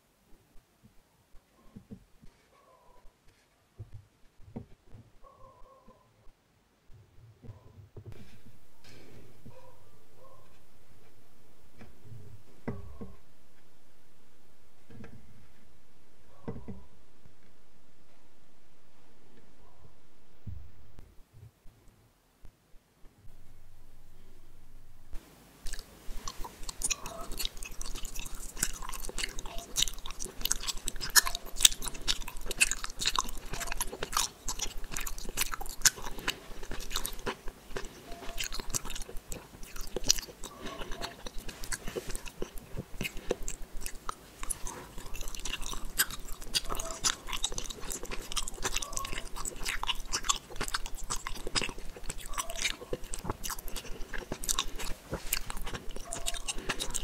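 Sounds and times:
chewing gummy candy: 25.7s - 57.0s.

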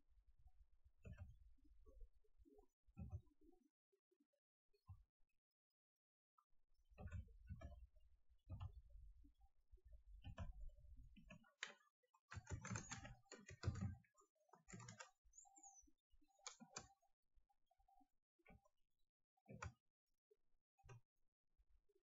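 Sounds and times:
faint keyboard typing: 10.2s - 17.1s.

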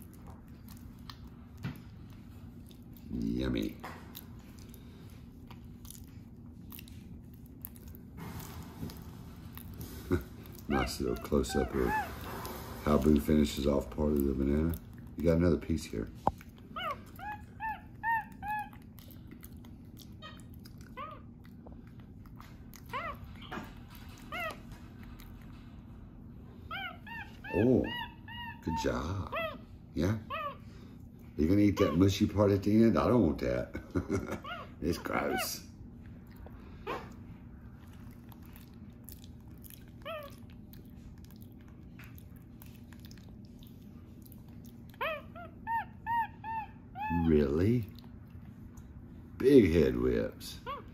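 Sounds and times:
monkey chirping: 45.0s - 47.3s.

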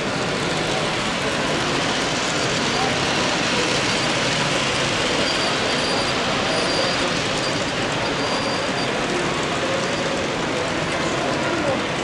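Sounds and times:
hubbub of busy hall: 0.0s - 12.0s
model train running on track: 0.0s - 12.0s.

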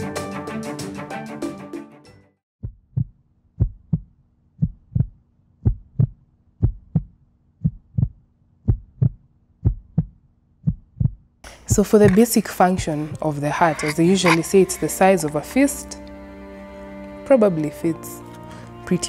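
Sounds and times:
heartbeat thumps: 2.6s - 12.2s.

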